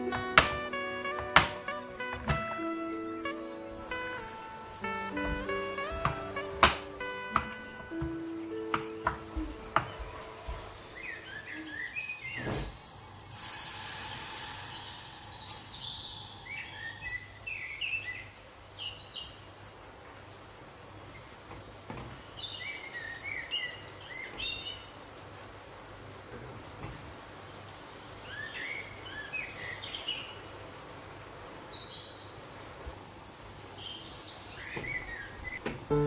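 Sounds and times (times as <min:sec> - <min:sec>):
birds chirping: 0:00.0 - 0:13.2, 0:14.4 - 0:25.0, 0:26.6 - 0:36.0
knife chopping on wooden board: 0:00.2 - 0:01.6, 0:05.2 - 0:09.2
hiss: 0:11.1 - 0:17.6.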